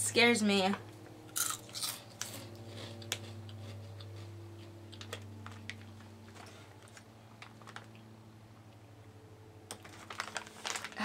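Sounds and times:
low hum: 0.0 - 11.0
chewing crunchy snack: 1.3 - 8.1.

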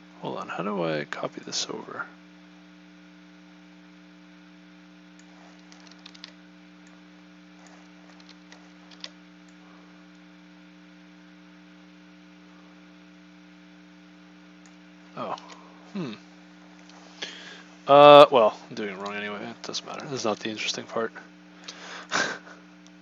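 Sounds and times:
electrical mains hum: 0.0 - 23.0
keyboard and mouse clicks: 5.2 - 7.0, 7.6 - 9.2.

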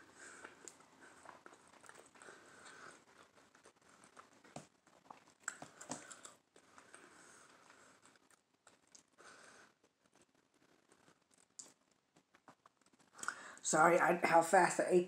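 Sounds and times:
person chewing food: 0.0 - 13.5
mouth smacks: 3.1 - 6.9.

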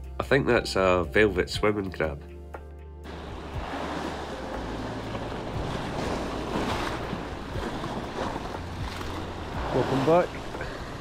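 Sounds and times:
waves breaking over rocks: 3.1 - 11.0.

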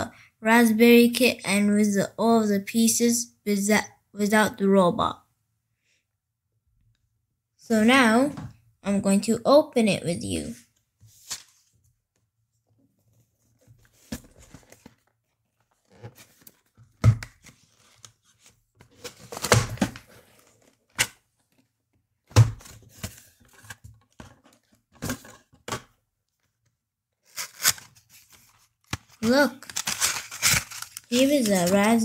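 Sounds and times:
paper and cardboard rustling: 13.0 - 21.6, 27.2 - 32.0.

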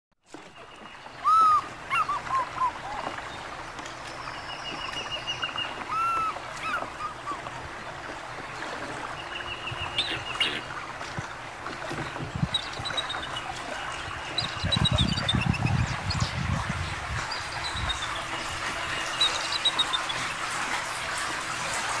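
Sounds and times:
eagle piping chirps: 1.2 - 3.0
wind gusts on microphone: 12.0 - 13.0, 13.8 - 19.0.

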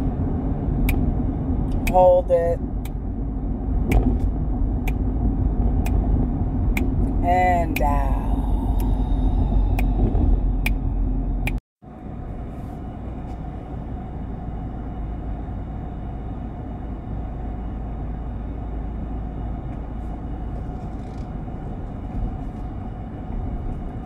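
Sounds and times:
car interior road noise: 0.0 - 24.0.

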